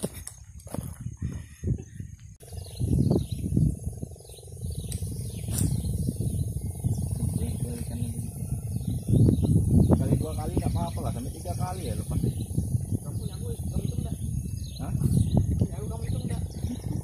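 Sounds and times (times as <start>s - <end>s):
high insect drone: 0.0s - 17.0s
wind on microphone: 0.0s - 17.0s.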